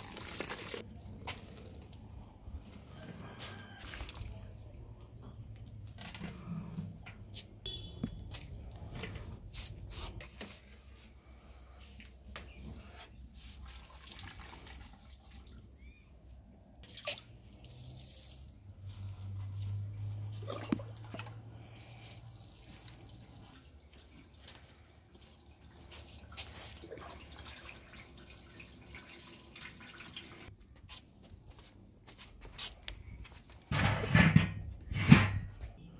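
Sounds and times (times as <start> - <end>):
water splashing and trickling: 0.0 - 5.6, 13.3 - 30.6.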